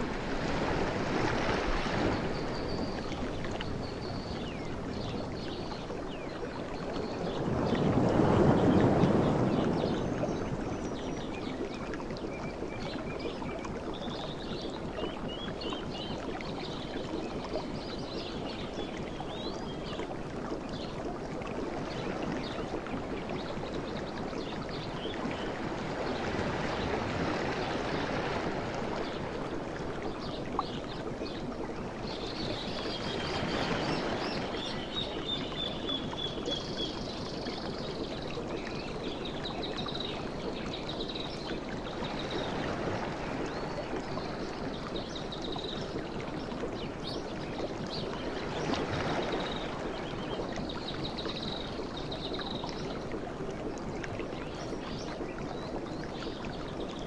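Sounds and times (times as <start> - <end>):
ocean surf washing: 0.0 - 2.5.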